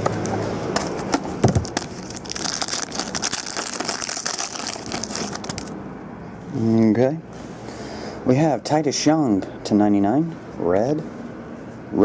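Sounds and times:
foil pack tearing and crinkling: 0:01.5 - 0:05.7.

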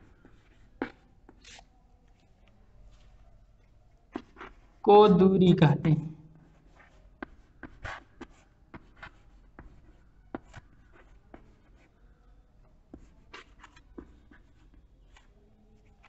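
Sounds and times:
chalk writing on chalkboard: 0:00.0 - 0:03.1, 0:06.4 - 0:12.0, 0:12.9 - 0:16.0.

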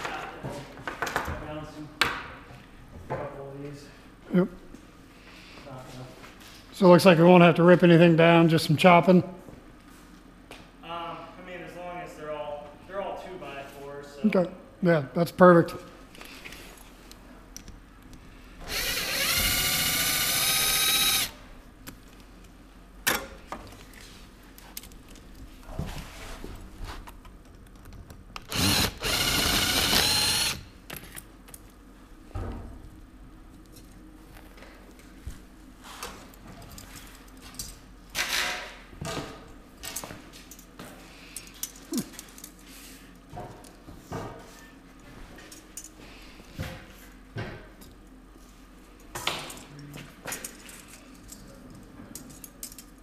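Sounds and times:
impact driver motor whine: 0:18.6 - 0:21.4, 0:28.5 - 0:30.7.

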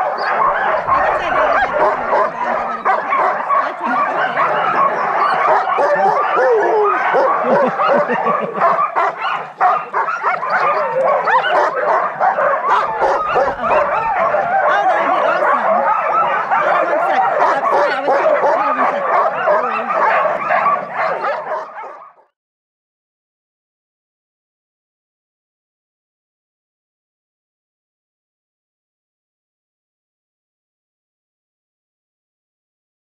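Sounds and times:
sled dogs barking and yipping: 0:00.0 - 0:22.3.

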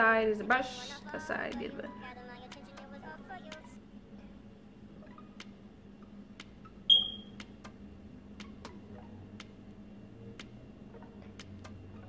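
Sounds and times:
sharp ringing ping: 0:06.9 - 0:07.3.

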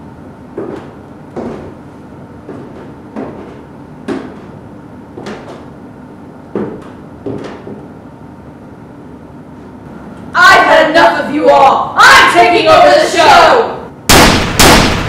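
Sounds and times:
heavy footsteps on stairs: 0:00.5 - 0:05.8, 0:06.4 - 0:08.0.

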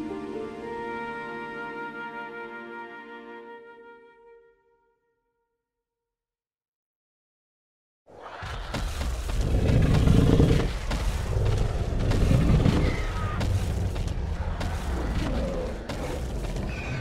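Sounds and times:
music: 0:00.0 - 0:06.1.

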